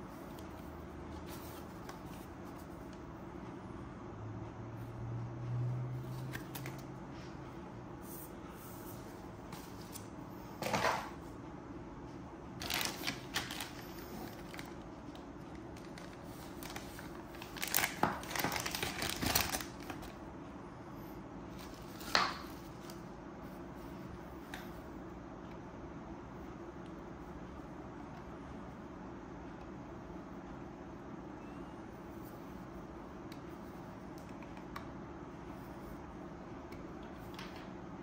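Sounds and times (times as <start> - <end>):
steady low hum: 0.0 - 38.0
plastic bags rustling and crinkling: 12.6 - 20.2.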